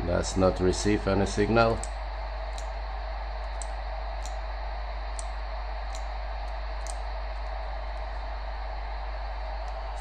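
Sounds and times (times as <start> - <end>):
low hum: 0.0 - 10.0
radio static hiss: 0.0 - 10.0
light ticks: 1.7 - 2.7, 3.5 - 4.4, 5.1 - 7.1.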